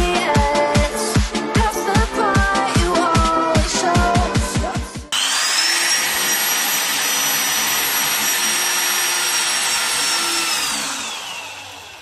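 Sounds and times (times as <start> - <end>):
power drill boring into wall: 5.1 - 12.0.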